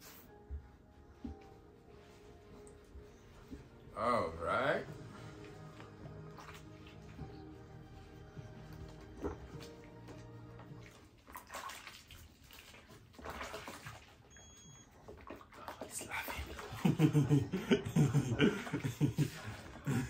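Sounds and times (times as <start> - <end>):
faint music: 0.0 - 20.0
water splashing in a baby bath: 4.8 - 20.0
man laughing: 16.7 - 20.0.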